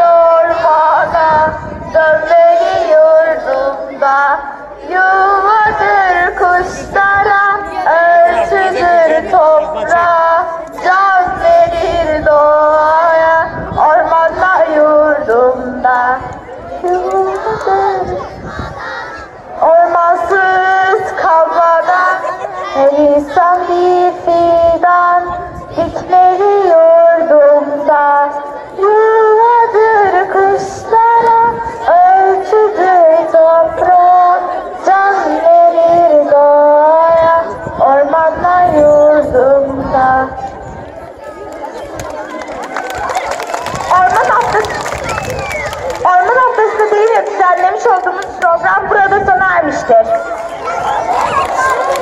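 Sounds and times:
children singing together: 0.0s - 40.9s
child singing into a microphone: 0.0s - 41.4s, 45.7s - 50.2s.

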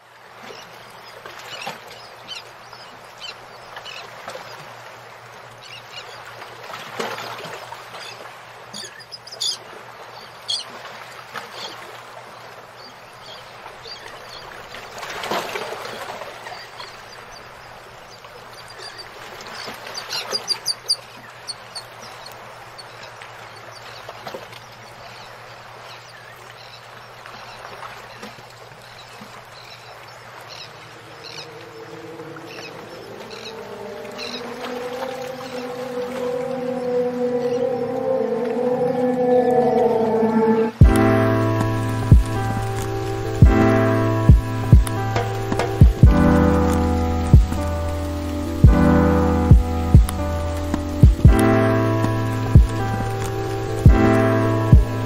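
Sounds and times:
nestling birds chirping: 16.5s - 24.1s, 29.6s - 47.7s.

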